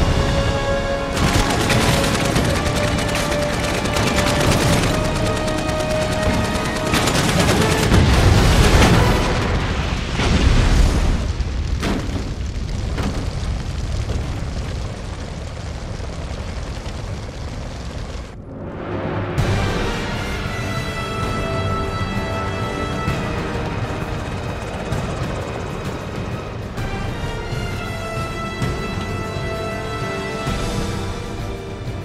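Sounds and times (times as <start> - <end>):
dramatic music score: 0.0 - 14.8, 18.2 - 32.0
automatic gunfire: 1.1 - 9.1
heavy explosions with rumbling: 6.2 - 18.4.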